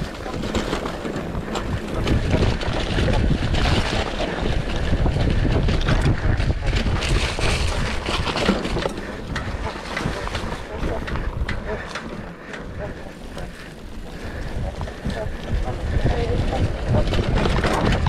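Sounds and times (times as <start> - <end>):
bike rattling and knocking: 0.0 - 18.0
tyre rumble: 0.0 - 18.0
wind buffeting microphone: 0.0 - 18.0.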